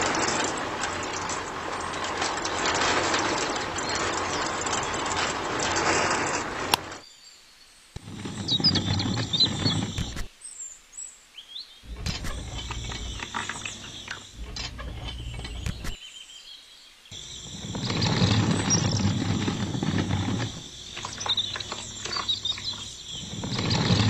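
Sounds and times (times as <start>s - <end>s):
small electric motor turning drum: 11.9s - 16.0s, 17.2s - 24.0s.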